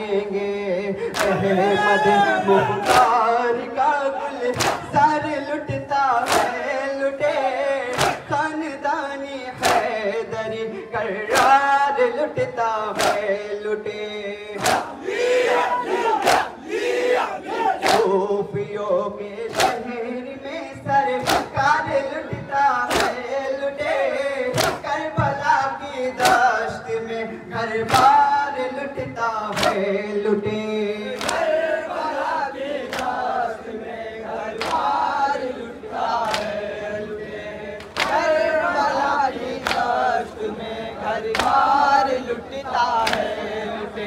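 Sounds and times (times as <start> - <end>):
lead voice through a microphone: 0.0 - 14.9, 17.5 - 31.2
men chanting a lament: 0.0 - 44.0.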